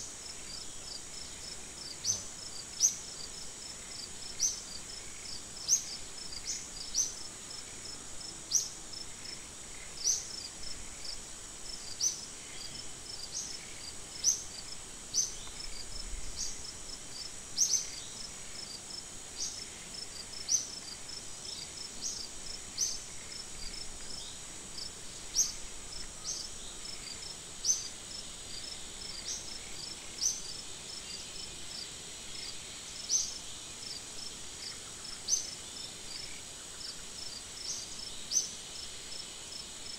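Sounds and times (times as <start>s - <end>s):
insects buzzing drone: 0.0s - 39.9s.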